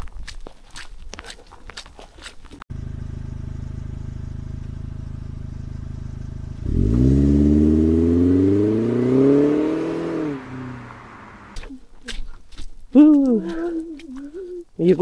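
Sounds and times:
vehicle engine revving: 2.7 - 11.6.

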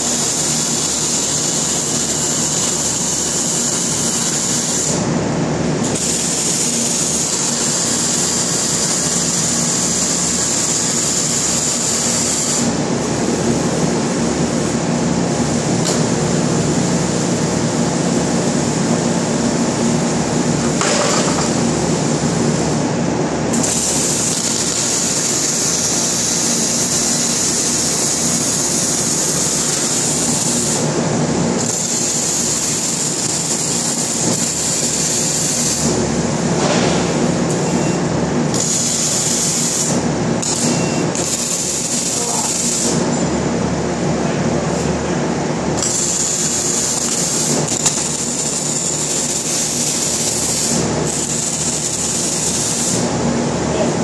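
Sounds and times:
arc welding crackling hiss: 0.0 - 5.1, 5.8 - 12.8, 23.5 - 31.0, 31.6 - 36.1, 38.5 - 43.1, 45.8 - 53.2.

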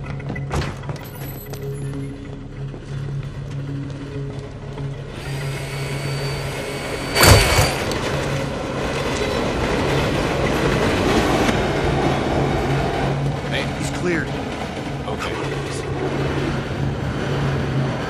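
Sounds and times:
loud sudden hit: 7.0 - 8.1.

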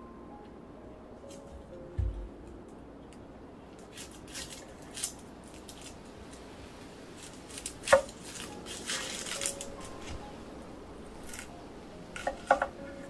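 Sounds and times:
onion skin crackling and tearing: 3.8 - 6.4, 7.2 - 10.2, 11.2 - 11.5.

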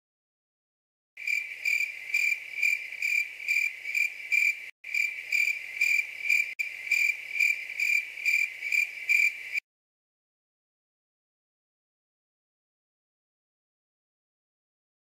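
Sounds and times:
crickets chirping: 1.2 - 9.6.

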